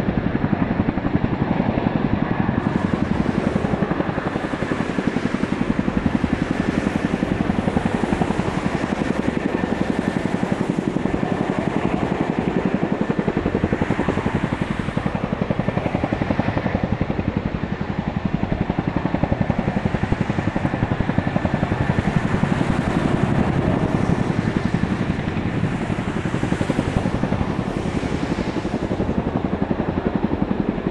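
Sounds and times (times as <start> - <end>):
helicopter rotors chopping: 0.0 - 30.9
thin steady whine: 0.0 - 30.9.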